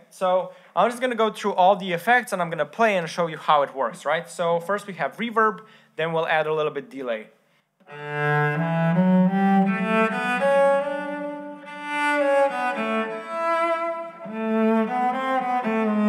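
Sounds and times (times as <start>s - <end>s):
cello playing long held notes: 7.8s - 16.0s.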